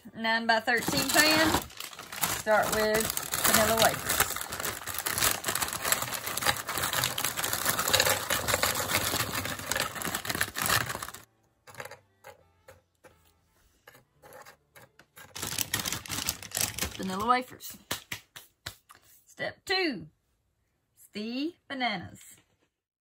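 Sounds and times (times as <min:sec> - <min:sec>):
plastic bag crinkling: 0:00.7 - 0:11.3, 0:15.2 - 0:17.2.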